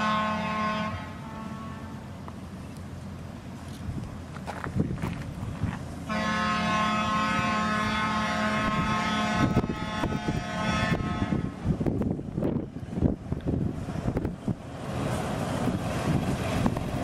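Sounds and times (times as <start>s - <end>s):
railcar horn blast: 0.0s - 2.1s, 6.1s - 11.7s
railcar engine rumbling: 0.0s - 17.0s.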